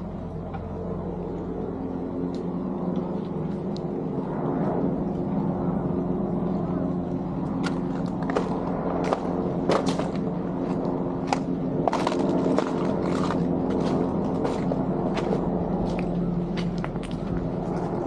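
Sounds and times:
low engine hum: 0.0s - 18.0s
footsteps on wet paving and debris: 7.6s - 18.0s.

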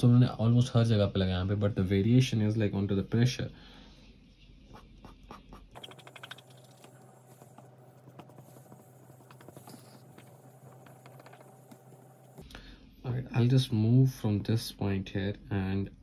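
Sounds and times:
eraser scratching on paper: 4.7s - 12.4s.

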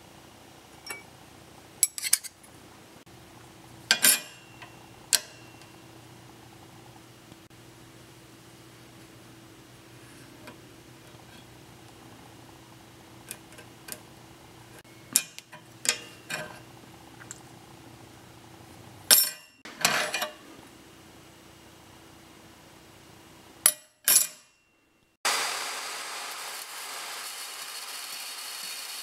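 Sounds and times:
low steady hum: 0.0s - 23.7s
metal parts clinking on workbench: 3.9s - 5.7s, 19.1s - 20.3s, 23.7s - 24.6s.

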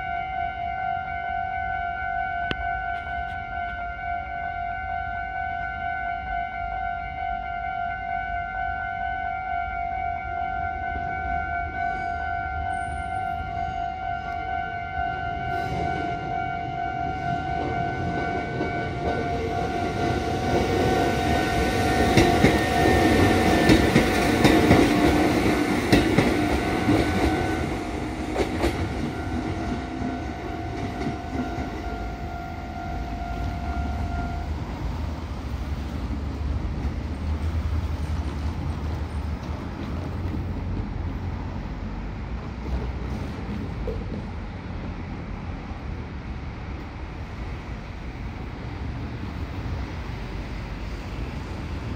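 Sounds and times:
electric train passing: 0.0s - 51.9s
level crossing warning bell: 9.3s - 34.6s
wheels clacking over rail joints: 17.6s - 32.0s.

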